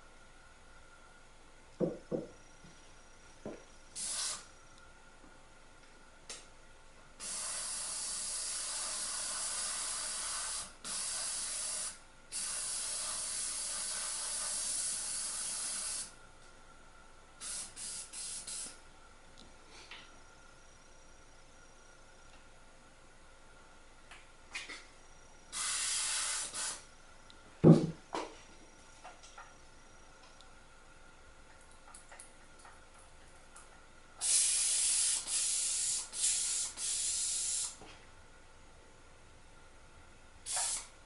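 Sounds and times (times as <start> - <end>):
airbrush hiss of compressed air: 4.0 - 4.5, 7.2 - 16.2, 17.4 - 18.8, 25.5 - 26.9, 34.2 - 37.8, 40.5 - 41.0.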